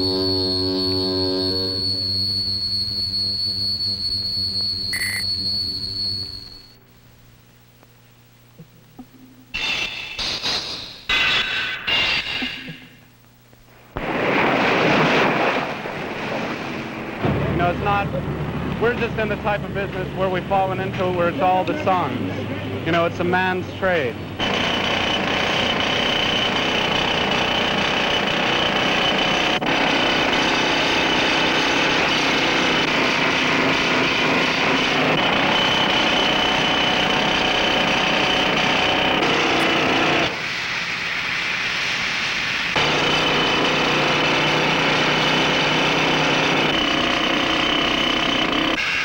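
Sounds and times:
pneumatic drill hammering concrete: 24.4s - 40.5s, 42.8s - 49.0s.

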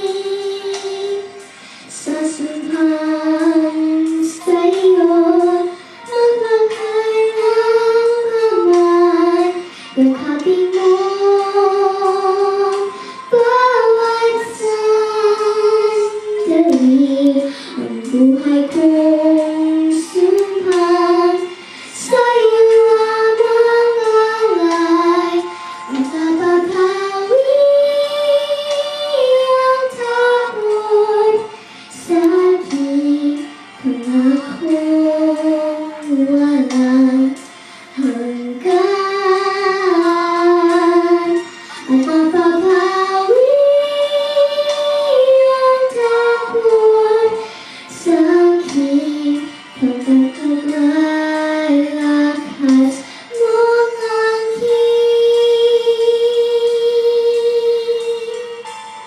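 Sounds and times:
girl singing into microphone: 0.0s - 59.0s.

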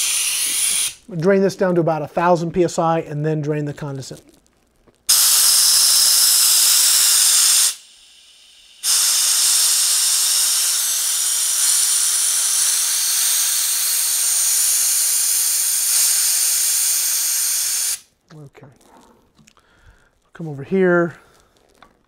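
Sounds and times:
high-pressure air hissing: 0.0s - 1.1s, 5.1s - 18.1s.

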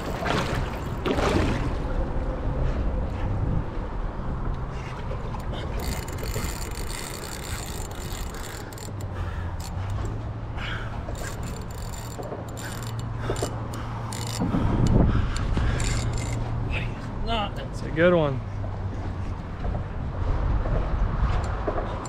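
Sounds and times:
water slapping boat hull: 0.0s - 2.2s
wind on microphone: 0.0s - 8.6s, 14.3s - 17.2s, 18.5s - 22.0s.

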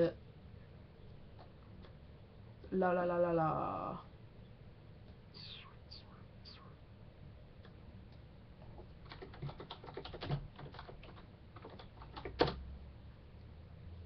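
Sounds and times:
computer keyboard typing: 8.6s - 12.6s.

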